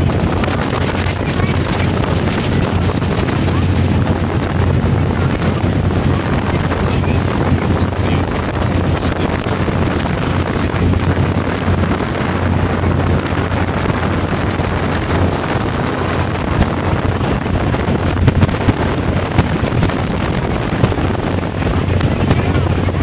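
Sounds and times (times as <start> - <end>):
ferry engine drone: 0.0 - 23.0
wind buffeting microphone: 0.0 - 23.0.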